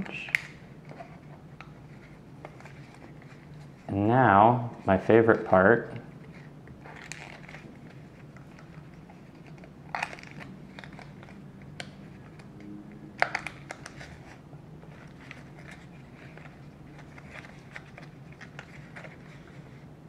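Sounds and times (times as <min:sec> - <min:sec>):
paper crinkling and clicking: 0:06.3 - 0:19.8.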